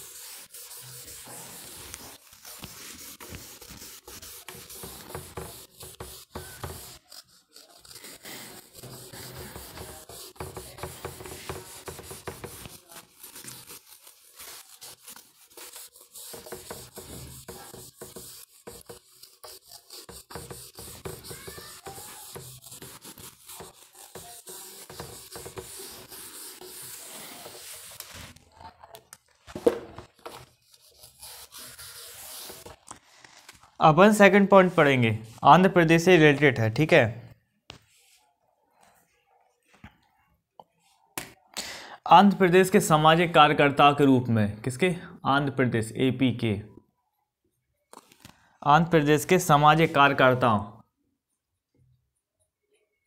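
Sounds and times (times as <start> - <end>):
eraser wiping whiteboard: 0.0 - 28.4, 30.2 - 32.8.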